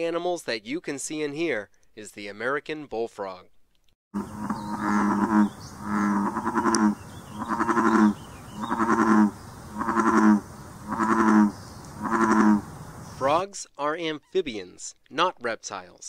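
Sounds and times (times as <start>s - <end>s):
bullfrog calling: 4.2s - 13.4s.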